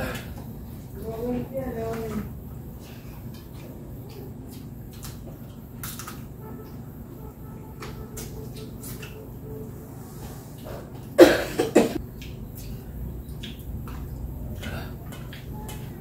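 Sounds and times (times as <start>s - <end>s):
person coughing: 11.2s - 12.0s.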